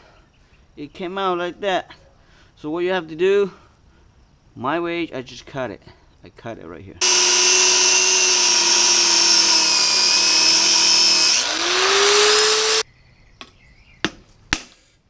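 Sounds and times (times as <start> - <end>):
angle grinder cutting metal: 7.0 - 12.8.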